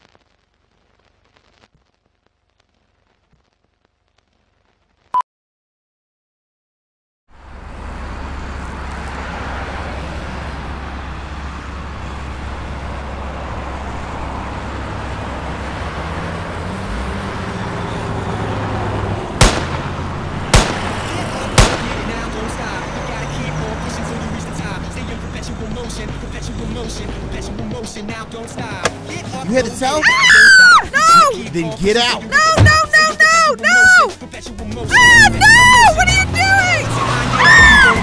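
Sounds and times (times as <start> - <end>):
street traffic: 7.3 - 38.0
car engine idling: 19.3 - 30.0
gunshots: 19.4 - 22.3.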